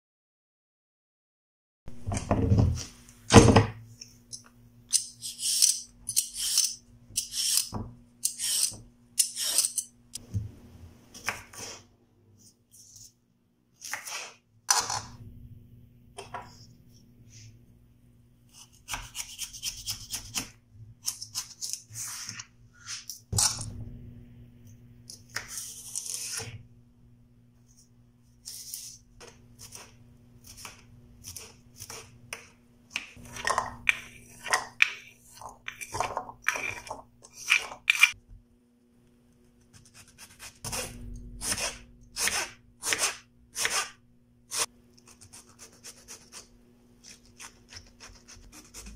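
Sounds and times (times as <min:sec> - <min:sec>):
knife slicing cucumber: 0:18.5 - 0:22.1, 0:25.3 - 0:26.6, 0:39.7 - 0:48.9.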